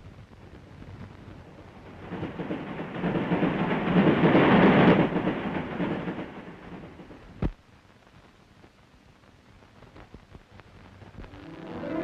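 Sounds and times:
rumbling noise: 10.2 - 12.0.

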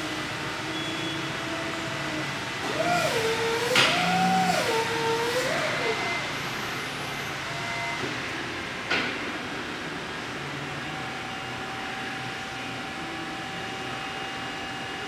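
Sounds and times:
electric drive whining: 0.0 - 8.3.

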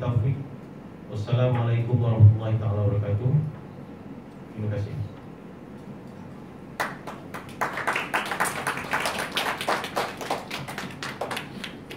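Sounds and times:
audience applauding: 6.8 - 11.9.

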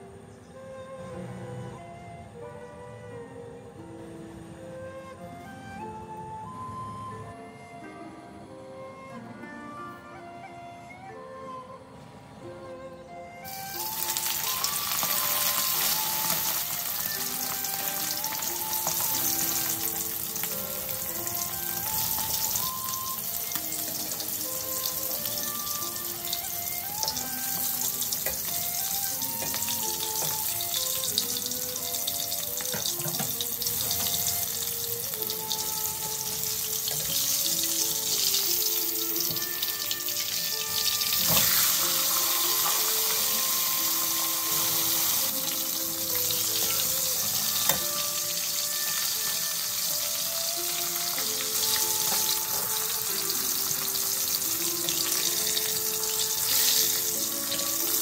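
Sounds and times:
deep-frying sizzle and crackle: 13.4 - 58.0.

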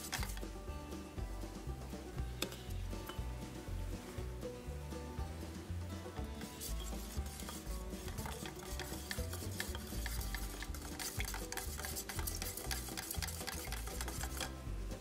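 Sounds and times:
stick scraping metal can: 0.0 - 0.4, 6.3 - 14.6
paint swishing: 6.2 - 14.6.

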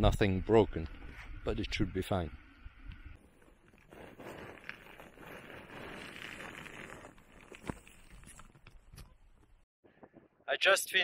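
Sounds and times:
gravel crunching and scraping: 3.0 - 9.6.

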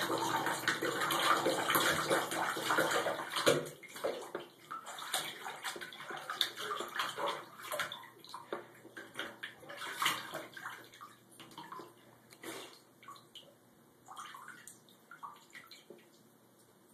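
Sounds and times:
puppy splashing in water: 0.0 - 11.9.

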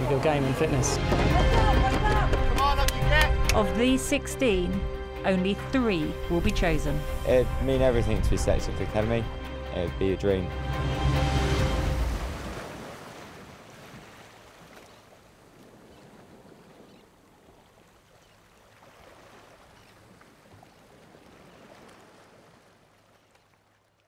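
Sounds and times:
trailer music: 0.0 - 12.5
water lapping against marina: 10.8 - 24.0.

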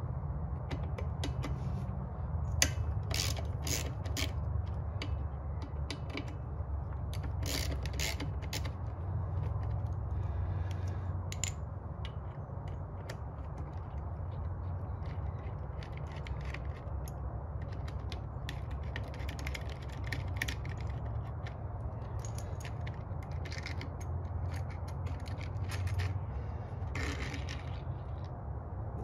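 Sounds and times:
ratchet clicking: 2.6 - 6.4, 7.1 - 10.0, 26.9 - 27.8.

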